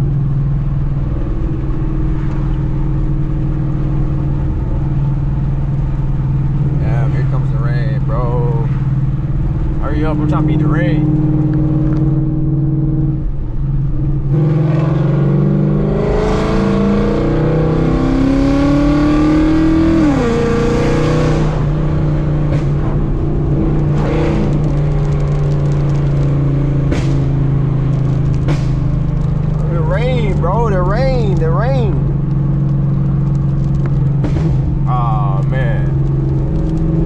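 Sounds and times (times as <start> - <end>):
vee-eight car engine accelerating: 0.0 - 37.0
exhaust pops: 21.3 - 37.0.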